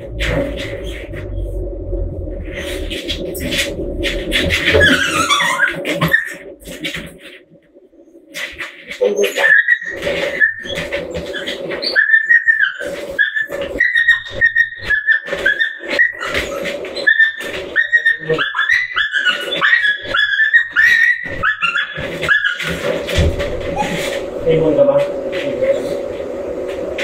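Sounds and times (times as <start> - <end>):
steady hum: 0.0 - 27.0
dog whining and yelping: 4.4 - 6.8, 9.0 - 24.2.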